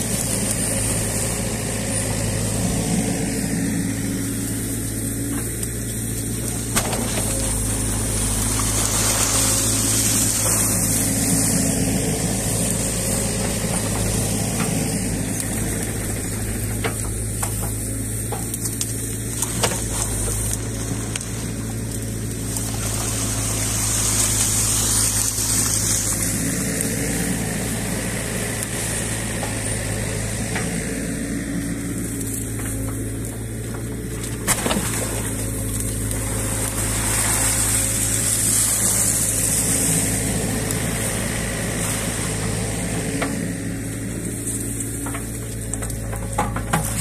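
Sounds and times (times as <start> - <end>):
excavator diesel engine running: 0.0 - 47.0.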